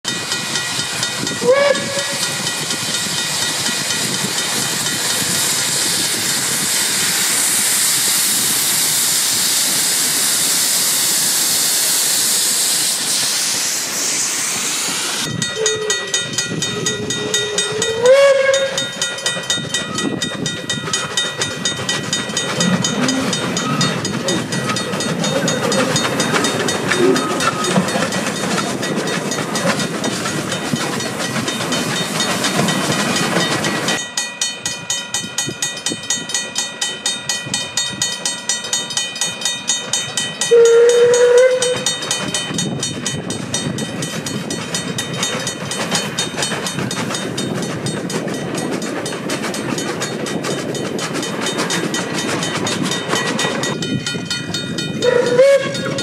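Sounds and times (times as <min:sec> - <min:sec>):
carriages rattling over rails: 0:00.0 - 0:11.2, 0:13.7 - 0:56.0
hissing steam: 0:00.1 - 0:34.2
steam whistle: 0:01.4 - 0:02.3, 0:16.7 - 0:18.9, 0:40.5 - 0:42.0, 0:55.0 - 0:56.0.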